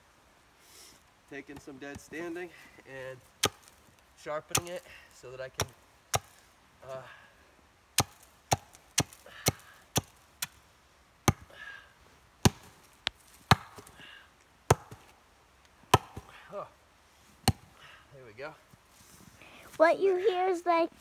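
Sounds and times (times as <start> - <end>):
axe chopping wood: 3.4 - 3.8, 4.5 - 4.9, 5.6 - 6.4, 8.0 - 10.6, 11.2 - 11.6, 12.4 - 12.8, 13.5 - 14.0, 14.7 - 15.1, 15.9 - 16.4, 17.4 - 17.8.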